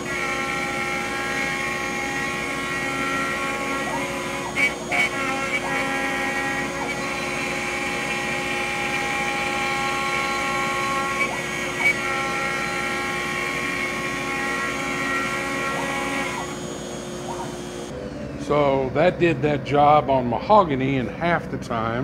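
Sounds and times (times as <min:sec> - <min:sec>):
router motor whine cutting wood: 0:00.0 - 0:18.0.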